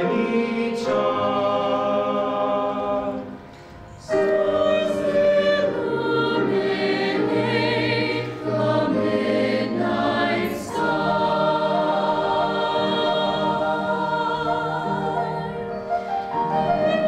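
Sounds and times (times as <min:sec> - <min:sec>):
choir singing sustained chords: 0:00.0 - 0:17.0.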